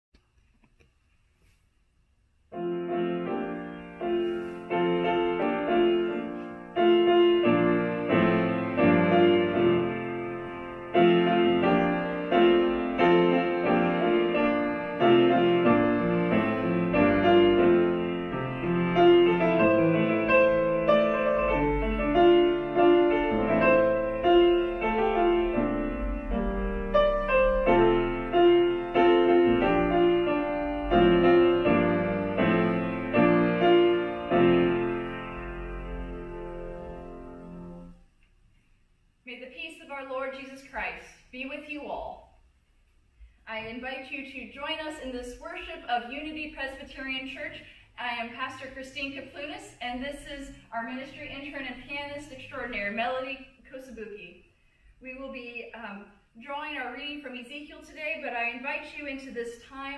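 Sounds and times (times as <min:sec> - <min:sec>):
grand piano playing: 0:02.5 - 0:38.1.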